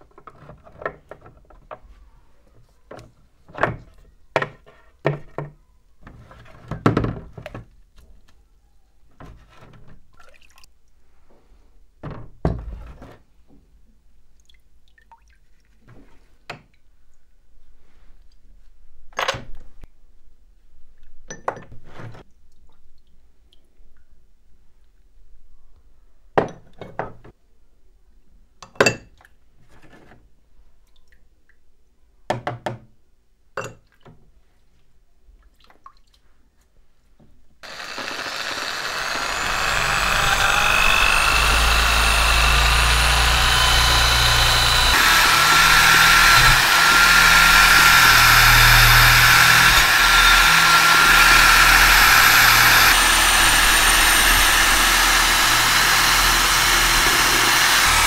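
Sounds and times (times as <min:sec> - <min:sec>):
rotary tool grinding metal: 0:37.6 - 0:58.0.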